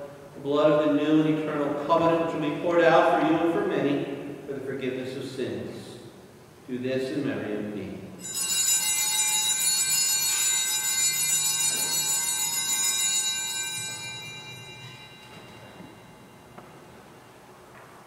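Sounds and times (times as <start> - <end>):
altar bells ringing: 8.2 - 17.3.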